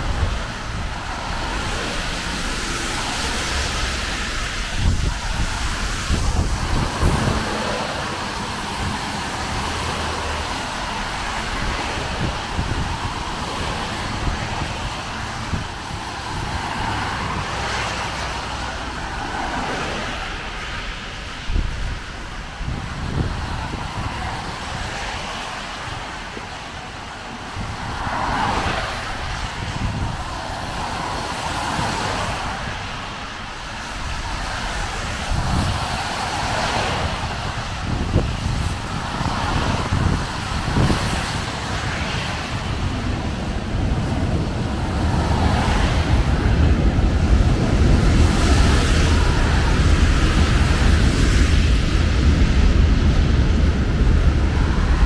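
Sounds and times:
tyres hissing on wet road: 0:00.0 - 0:55.0.

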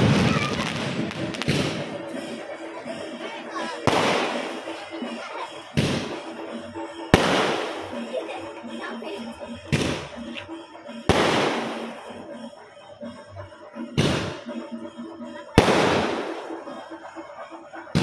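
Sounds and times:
fireworks bursting with bangs: 0:00.0 - 0:08.2, 0:09.6 - 0:10.3, 0:11.1 - 0:12.2, 0:13.9 - 0:14.7, 0:15.6 - 0:16.9
fireworks rumble and crackle: 0:00.0 - 0:18.0.

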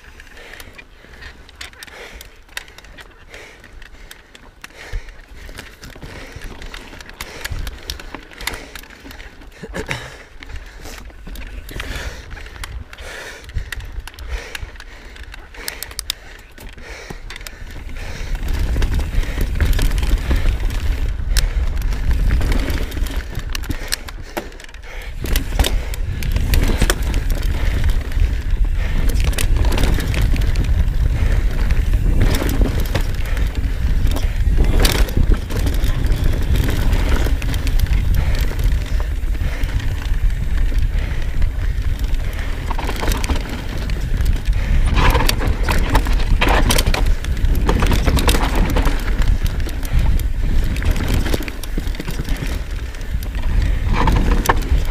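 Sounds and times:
bike clattering over bumps: 0:00.1 - 0:54.9
wind buffeting microphone: 0:10.7 - 0:54.9
tyres crunching over dirt: 0:25.2 - 0:54.9.

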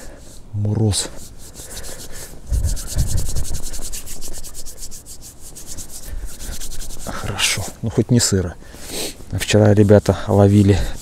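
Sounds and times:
rubbing and scraping strokes: 0:00.0 - 0:11.0.

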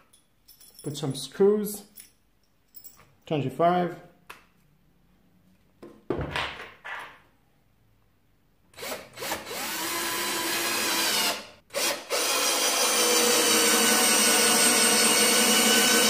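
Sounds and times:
cordless drill motor running: 0:08.8 - 0:16.0.

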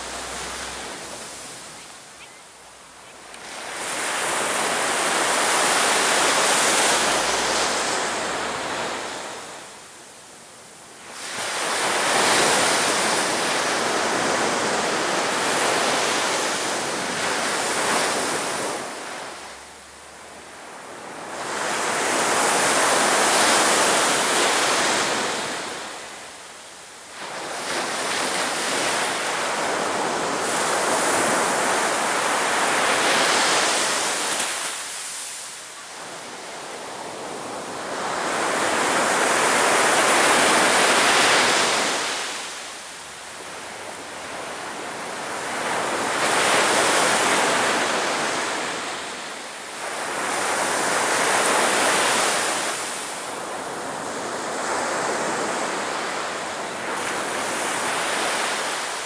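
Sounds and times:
sea waves breaking: 0:00.0 - 0:02.2.

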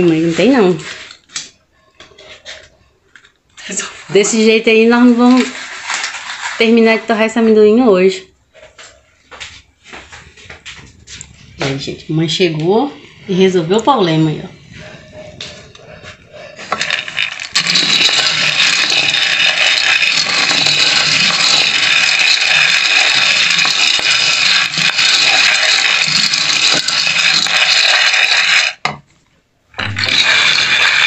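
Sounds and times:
peanuts stirred in metal pan: 0:00.0 - 0:01.1, 0:03.6 - 0:07.6, 0:13.2 - 0:28.8, 0:29.8 - 0:31.0.

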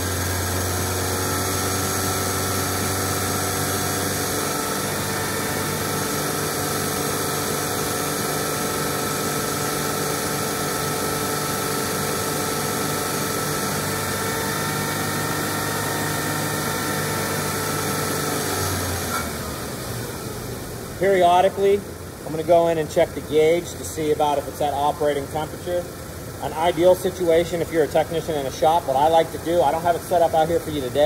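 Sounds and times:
engine revving: 0:00.0 - 0:20.4.

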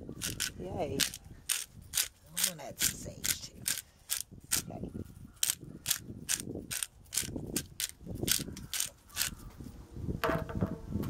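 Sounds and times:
pepper grinder crunching clicks: 0:00.2 - 0:04.7, 0:05.4 - 0:09.4.

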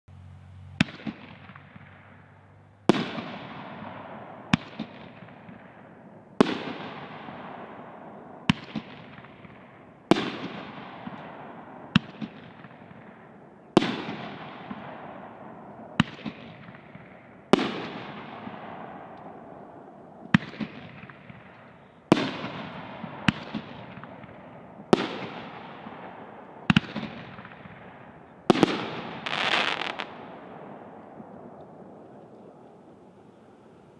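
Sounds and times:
firework bangs: 0:00.8 - 0:13.2, 0:13.8 - 0:19.6, 0:20.3 - 0:31.5
firework hiss: 0:29.2 - 0:30.1.

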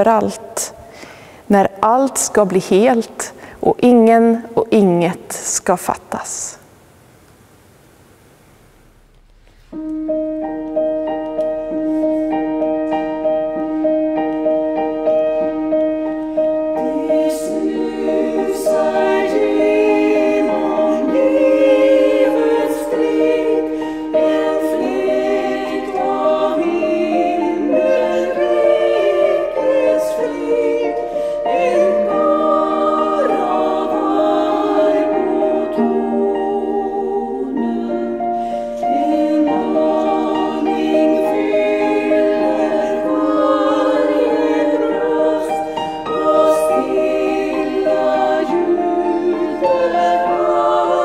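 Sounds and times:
grand piano: 0:08.9 - 0:51.0
women singing in harmony: 0:16.6 - 0:51.0.

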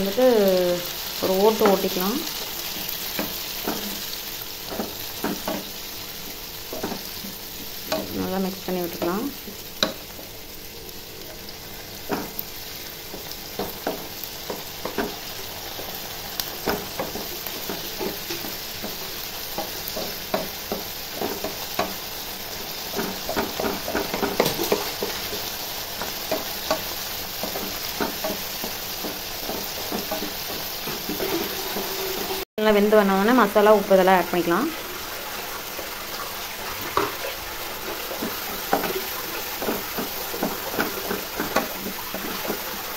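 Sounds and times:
vegetables sizzling in hot oil: 0:00.0 - 0:42.9
spatula scraping a pan: 0:11.2 - 0:32.5, 0:36.7 - 0:42.9.

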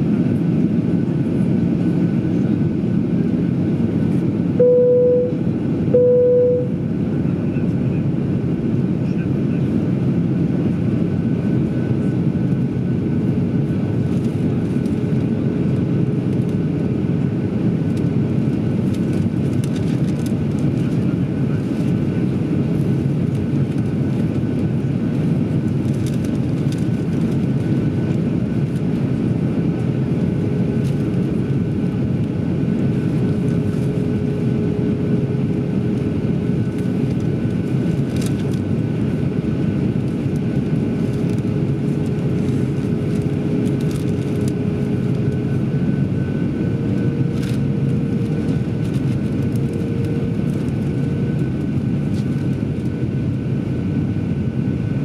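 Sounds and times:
jet engines droning: 0:00.0 - 0:55.0
rush of air in aircraft cabin: 0:00.0 - 0:55.0
faint steady tone: 0:04.6 - 0:06.8.

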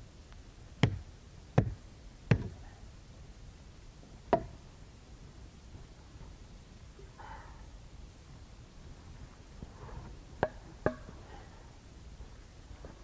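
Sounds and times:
hatchet chopping wood: 0:00.8 - 0:01.0, 0:01.6 - 0:02.6, 0:04.3 - 0:04.5.

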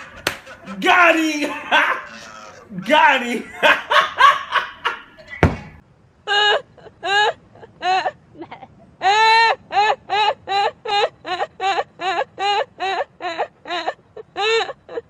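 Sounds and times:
man laughing: 0:00.0 - 0:05.4
woman laughing loudly: 0:03.5 - 0:05.3, 0:06.3 - 0:15.0
dull thump: 0:05.4 - 0:05.8.

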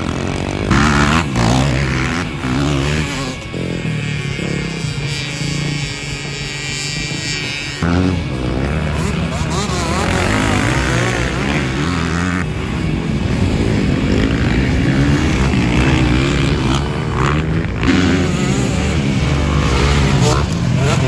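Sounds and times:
dirt bike engines revving: 0:00.0 - 0:21.0.

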